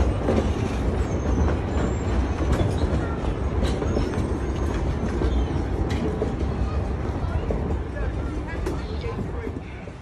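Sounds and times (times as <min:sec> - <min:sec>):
train wheels rumbling on rails: 0:00.0 - 0:10.0.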